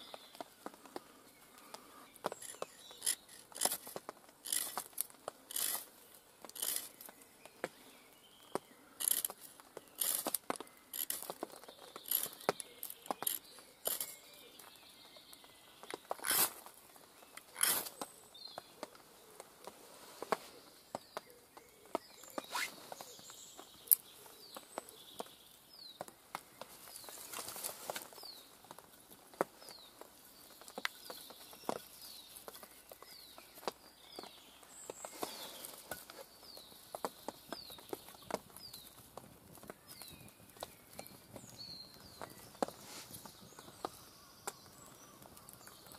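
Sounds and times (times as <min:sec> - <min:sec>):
wood shavings crackling: 0:00.0 - 0:45.9
knife scraping ferro rod: 0:02.4 - 0:04.9, 0:05.5 - 0:05.9, 0:16.2 - 0:16.5, 0:17.6 - 0:17.9.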